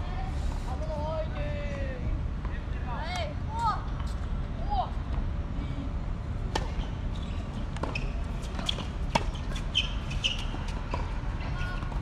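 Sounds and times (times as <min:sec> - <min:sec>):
tennis balls struck by rackets: 0:06.4 - 0:07.0, 0:07.7 - 0:09.6
tennis balls bouncing on court: 0:06.4 - 0:12.0.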